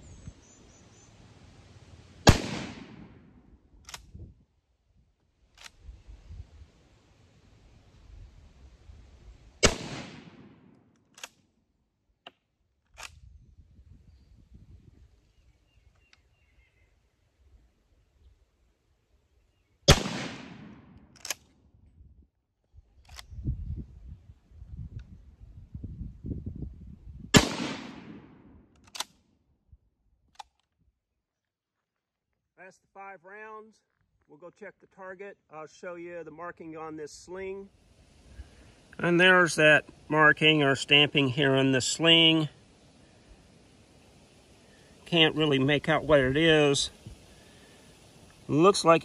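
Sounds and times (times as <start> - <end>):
rifle shot with echo: 2.2 - 3.5, 9.6 - 10.8, 19.9 - 21.4, 27.3 - 28.7
rifle bolt clicks: 3.8 - 4.1, 10.9 - 11.4, 21.0 - 21.6, 28.7 - 29.2.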